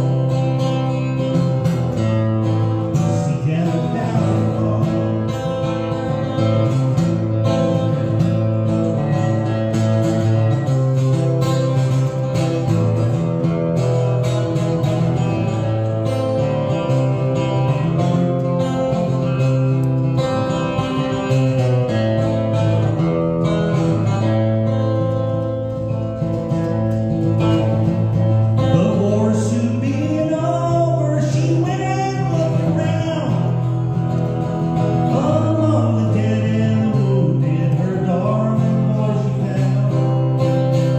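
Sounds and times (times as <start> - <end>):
acoustic guitar strumming: 0.0 - 40.9
person singing: 2.9 - 6.6, 28.6 - 33.6, 34.9 - 40.9.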